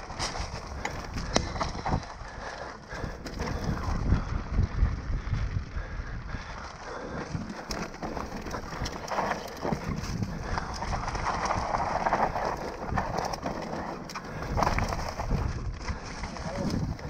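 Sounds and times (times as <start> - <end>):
bike clicks and rattles: 0.0 - 17.0.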